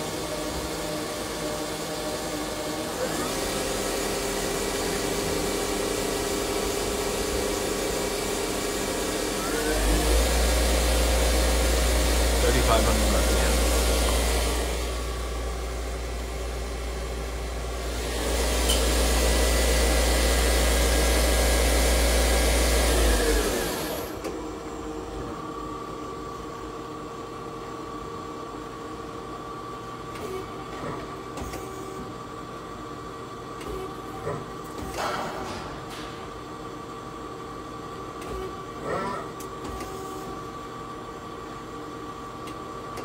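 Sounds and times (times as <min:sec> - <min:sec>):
lathe spindle running: 0:00.0 - 0:25.6
lathe winding down whine: 0:07.6 - 0:24.3.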